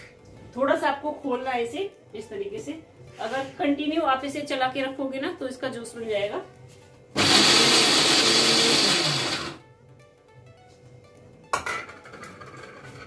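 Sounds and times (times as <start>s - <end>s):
mixer grinder running: 7.2s - 9.6s.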